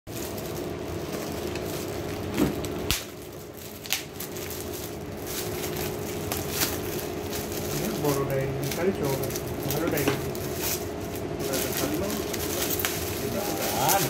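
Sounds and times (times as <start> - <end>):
foil wrap crinkling and tearing: 0.1 - 14.0
low background hum: 0.1 - 14.0.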